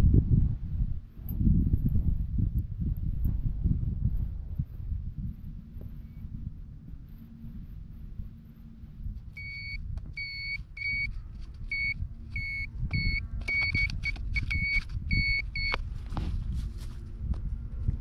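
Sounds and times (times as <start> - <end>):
metal detector probe beeping: 9.3 - 15.8
dirt scraping: 13.5 - 18.0.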